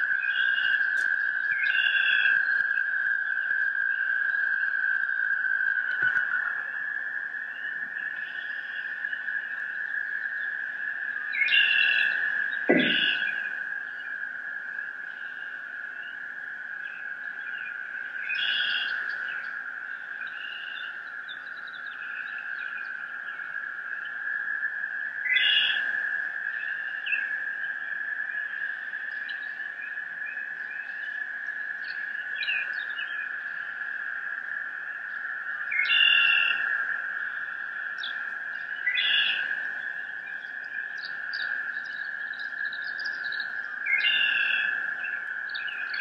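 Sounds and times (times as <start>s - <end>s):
chirping bird-like calls: 11.3s - 13.5s
high-pitched drone: 12.7s - 13.3s.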